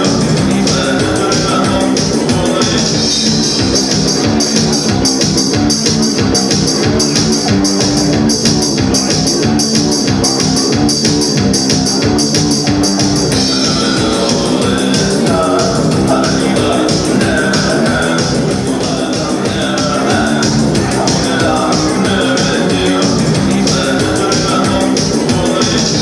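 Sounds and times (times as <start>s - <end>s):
live post-punk band music: 0.0s - 26.0s.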